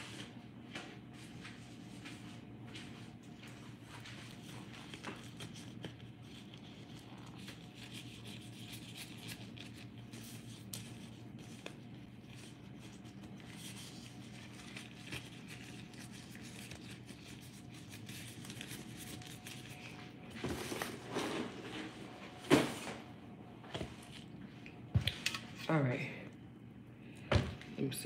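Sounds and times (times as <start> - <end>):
low steady hum: 0.0 - 28.0
plastic gloves rustling: 3.7 - 21.8.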